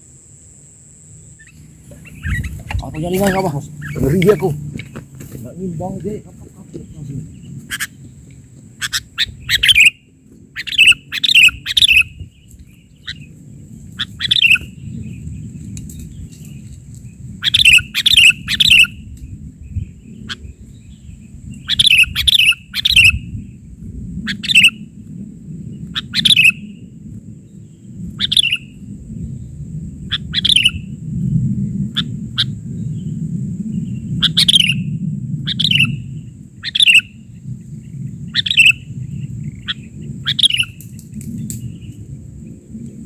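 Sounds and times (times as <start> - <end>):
low steady rumble: 0.0 - 43.0
bulbul calling: 1.3 - 8.2, 8.8 - 13.3, 14.0 - 15.2, 17.4 - 19.1, 19.7 - 23.3, 24.3 - 24.8, 25.8 - 26.8, 28.2 - 28.8, 30.1 - 30.9, 33.9 - 34.9, 35.5 - 40.9.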